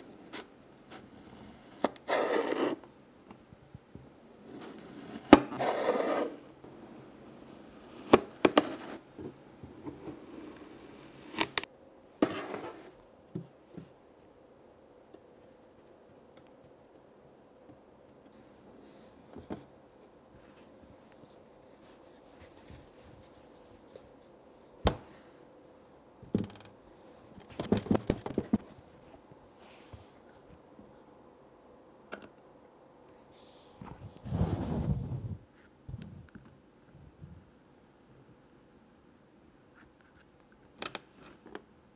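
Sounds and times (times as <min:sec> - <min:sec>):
sand scraping and crumbling: 0:33.4 - 0:35.4.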